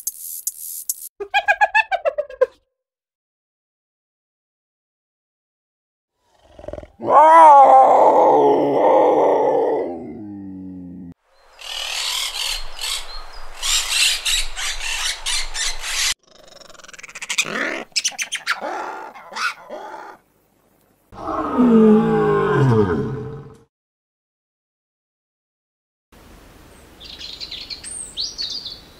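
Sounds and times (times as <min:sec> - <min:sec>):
lion roaring: 0:06.3 - 0:11.2, 0:21.2 - 0:23.6.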